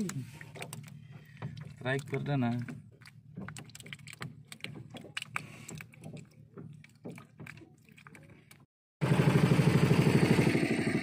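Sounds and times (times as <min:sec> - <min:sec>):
fish flopping on wet deck: 0:00.0 - 0:08.7
boat engine running: 0:00.0 - 0:11.0.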